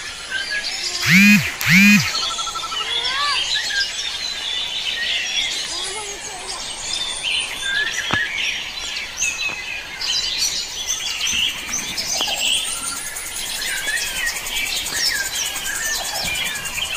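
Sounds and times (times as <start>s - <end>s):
small birds chirping: 0.8s - 2.3s.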